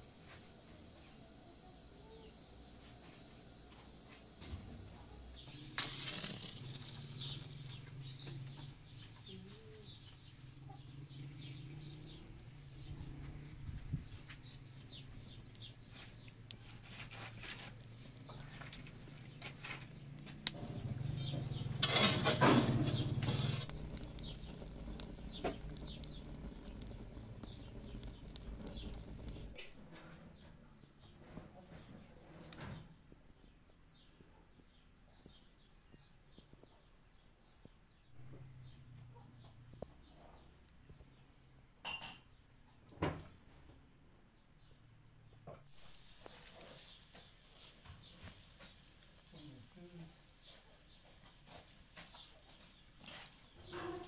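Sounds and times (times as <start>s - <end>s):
wood fire crackling: 0.0s - 30.6s, 45.4s - 54.0s.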